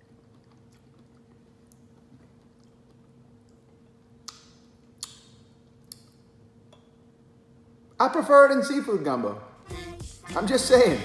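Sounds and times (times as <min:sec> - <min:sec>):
man chewing: 0:00.0 - 0:05.2
steady low hum: 0:00.0 - 0:11.0.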